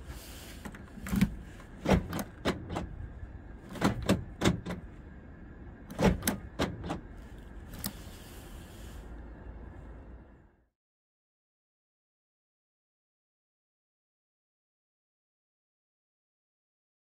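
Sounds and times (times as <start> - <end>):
car door locks clicking: 0.7 - 3.0, 3.6 - 4.9, 5.9 - 7.1.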